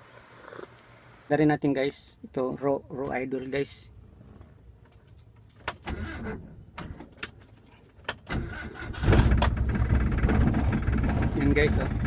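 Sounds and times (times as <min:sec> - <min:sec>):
keys jingling: 0:04.8 - 0:05.7, 0:07.3 - 0:08.0
car engine starting and idling: 0:05.7 - 0:07.4, 0:08.1 - 0:12.0.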